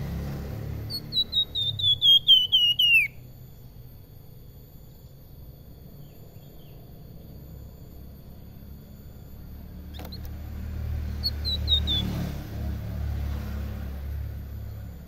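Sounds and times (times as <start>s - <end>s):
songbird whistling: 0.8s - 3.3s, 9.9s - 10.3s, 11.2s - 12.3s.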